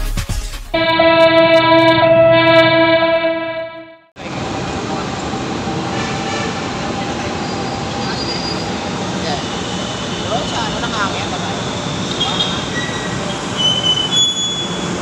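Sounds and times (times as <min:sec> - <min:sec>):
train horn blast: 0:00.8 - 0:04.1, 0:05.9 - 0:06.8
city traffic noise: 0:04.2 - 0:15.0.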